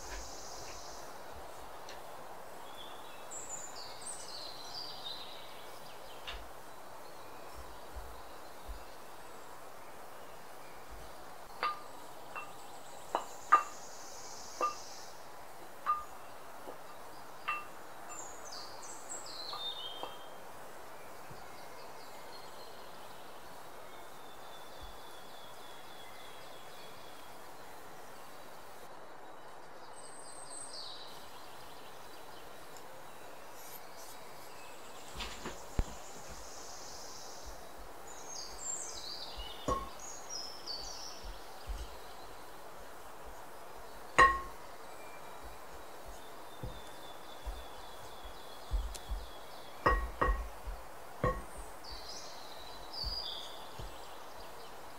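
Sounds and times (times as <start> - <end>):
low background hiss: 0.0 - 54.9
bird chirps: 11.5 - 15.2, 34.0 - 42.3
wooden spoon knocking glass bowl: 13.2 - 13.7, 39.7 - 40.0, 44.2 - 44.5, 49.8 - 51.5.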